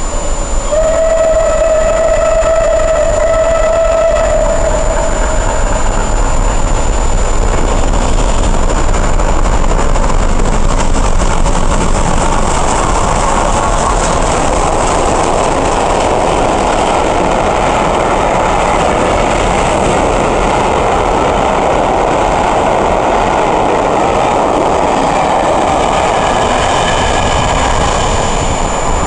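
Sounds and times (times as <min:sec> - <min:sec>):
faint high whistling tones: 0:00.0 - 0:08.2, 0:26.8 - 0:29.0
steam train rushing past: 0:00.0 - 0:29.0.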